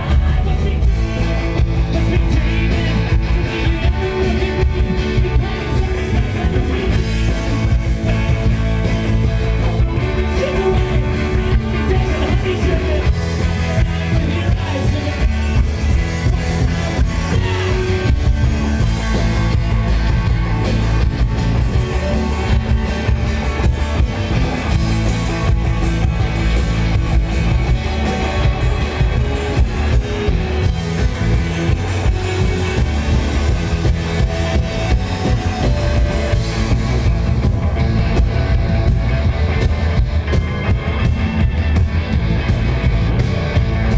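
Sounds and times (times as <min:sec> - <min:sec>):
rock band playing live: 0:00.0 - 0:43.9.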